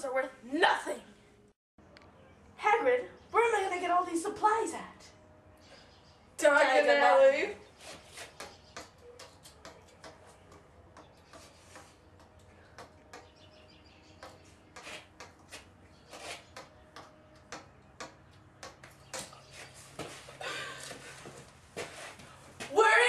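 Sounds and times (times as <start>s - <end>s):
stick tapping brick wall: 7.9s - 13.4s, 14.1s - 20.1s.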